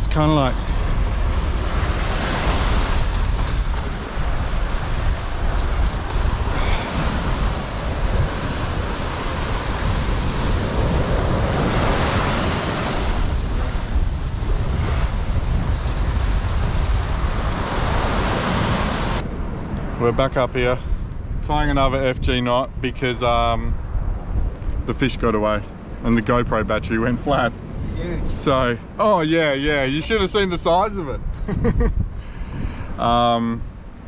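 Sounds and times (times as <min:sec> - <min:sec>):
ocean surf washing: 0:00.0 - 0:22.8
wind buffeting microphone: 0:00.0 - 0:34.0.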